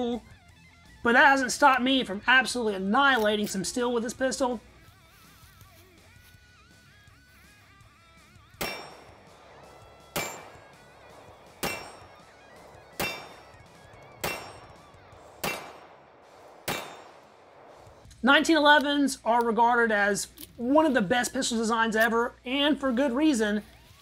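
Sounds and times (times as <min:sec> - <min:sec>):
pistol shots: 0:08.5 - 0:18.0
metallic ring of steel target: 0:08.6 - 0:17.6.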